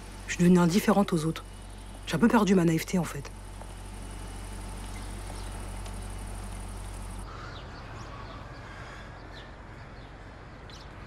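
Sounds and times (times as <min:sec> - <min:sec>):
faint high whine: 0:00.0 - 0:07.3
outdoor background hum: 0:00.0 - 0:11.0
bird chirps: 0:04.7 - 0:07.2.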